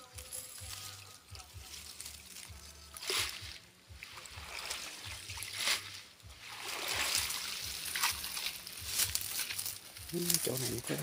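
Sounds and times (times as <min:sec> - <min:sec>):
water streaming and dripping: 0:00.4 - 0:11.0
net splashing in water: 0:01.7 - 0:09.8.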